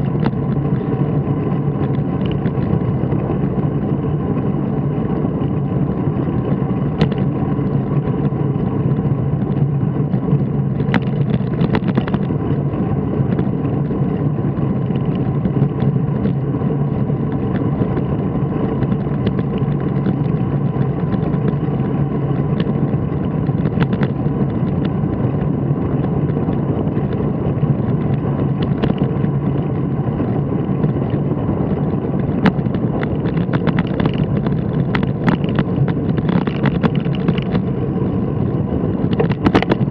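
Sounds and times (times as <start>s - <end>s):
vehicle cruising: 0.0s - 39.9s.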